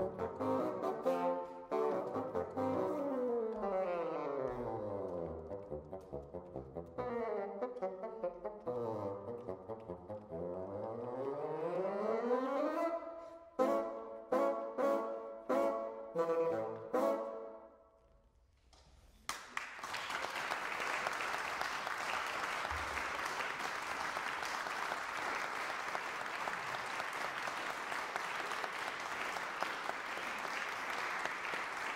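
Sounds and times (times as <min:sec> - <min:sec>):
bassoons playing chords: 0:00.0 - 0:17.7
audience applause: 0:19.3 - 0:31.9.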